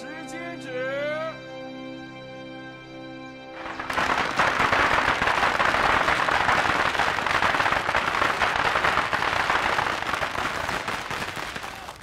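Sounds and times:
crowd clapping: 3.6s - 12.0s
firecrackers crackling: 3.6s - 12.0s.

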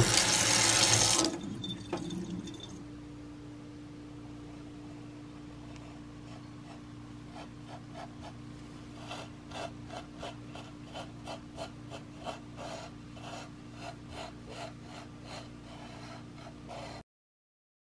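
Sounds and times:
salt grating on wooden board: 9.0s - 17.0s.

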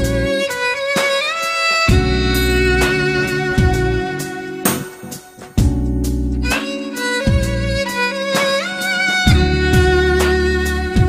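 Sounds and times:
bass line: 0.0s - 0.5s, 1.9s - 8.2s, 9.3s - 11.0s
held melody note: 1.9s - 11.0s.

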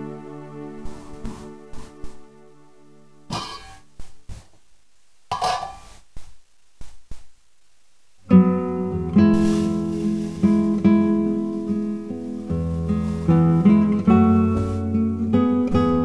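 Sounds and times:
strummed acoustic guitar music: 8.3s - 16.0s.

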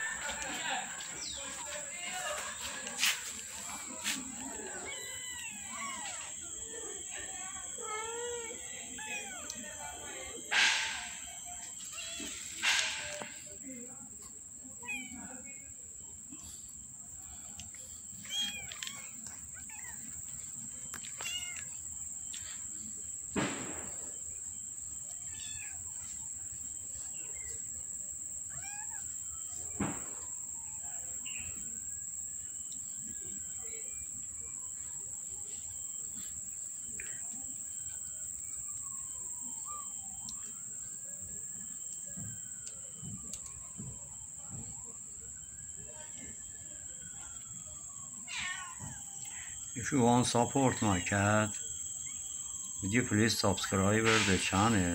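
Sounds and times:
kittens mewing: 4.5s - 6.4s, 7.9s - 9.7s, 18.2s - 20.2s, 21.1s - 21.8s.

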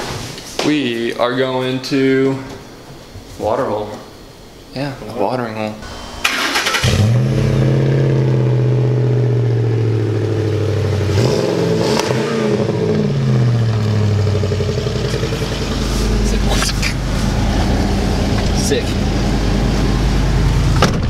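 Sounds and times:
truck engine idling: 13.1s - 20.9s.

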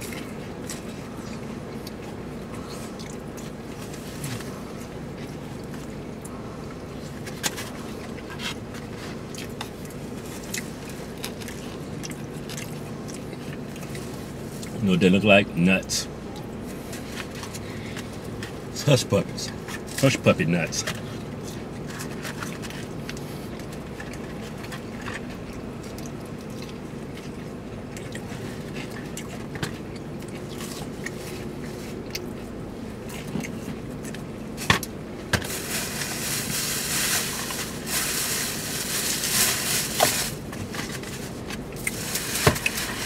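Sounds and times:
chewing clicks: 22.4s - 31.2s.

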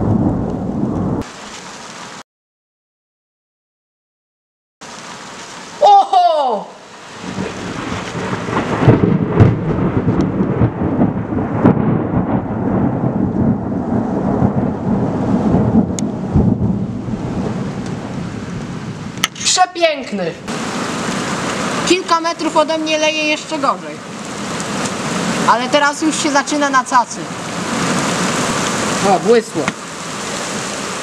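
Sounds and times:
thunder rumbling: 0.0s - 1.3s, 7.1s - 31.0s
heavy rain hissing: 1.2s - 2.2s, 4.8s - 9.5s, 14.5s - 31.0s.

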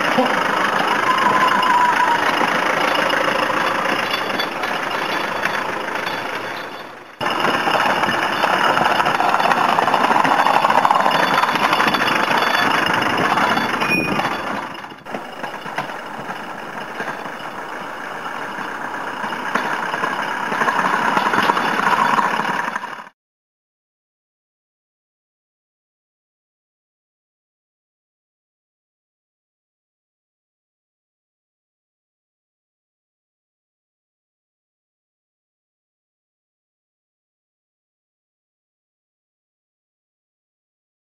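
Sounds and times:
plough blade pushing through snow: 0.0s - 23.1s
vehicle engine running: 0.0s - 23.1s.

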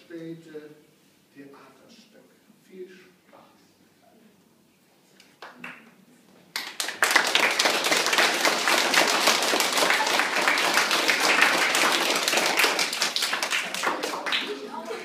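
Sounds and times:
audience clapping: 6.5s - 15.0s.

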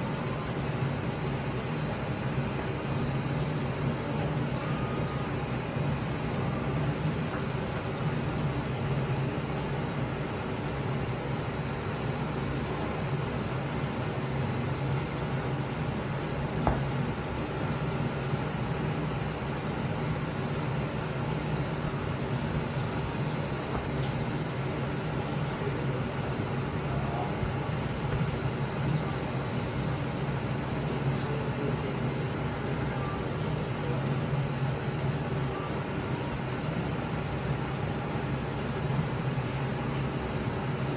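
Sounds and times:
low mechanical hum: 0.0s - 40.9s
knife knocking on cutting board: 16.6s - 16.9s.

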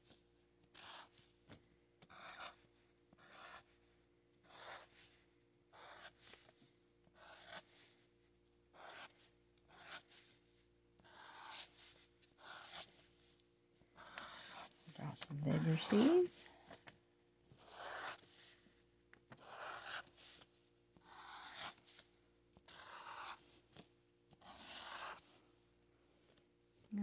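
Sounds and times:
marker scratching on paper: 0.7s - 1.2s, 2.1s - 3.8s, 4.4s - 6.5s, 7.2s - 7.9s, 8.8s - 10.4s, 11.0s - 13.4s, 14.0s - 16.8s, 17.5s - 18.7s, 19.3s - 22.1s, 22.7s - 23.8s, 24.4s - 25.4s.

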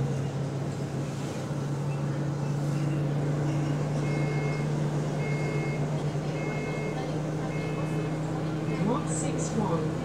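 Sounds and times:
bus engine droning: 0.0s - 10.0s.

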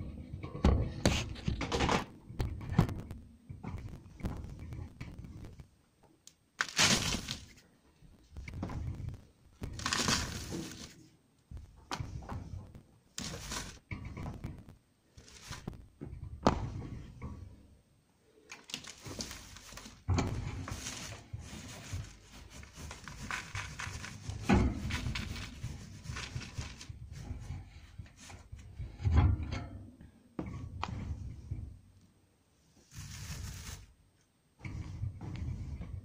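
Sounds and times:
newspaper rustling: 6.6s - 7.6s, 9.7s - 11.0s, 13.2s - 13.8s, 15.2s - 15.7s, 18.5s - 20.0s, 20.6s - 26.9s, 32.9s - 33.9s.

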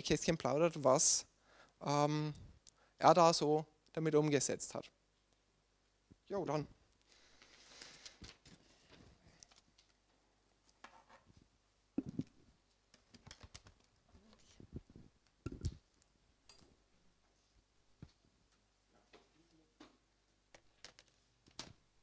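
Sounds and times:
laptop and cables being handled: 7.4s - 16.6s, 20.5s - 21.8s.

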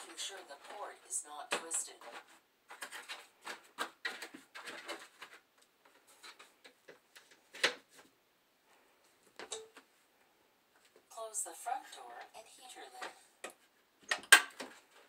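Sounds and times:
plastic tubing rustling and clicking: 0.0s - 10.0s, 13.0s - 15.0s.

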